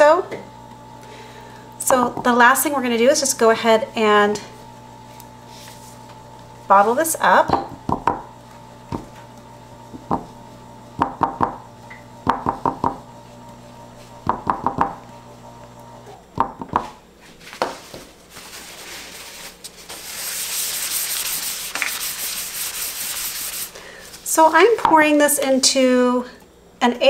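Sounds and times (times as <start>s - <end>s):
cloth rubbing tabletop: 4.6s - 7.1s, 17.3s - 24.8s.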